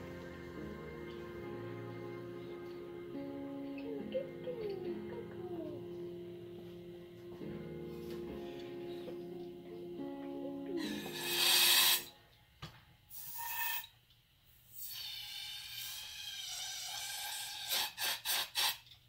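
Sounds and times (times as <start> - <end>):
spray hissing: 10.8 - 12.1, 14.7 - 18.9.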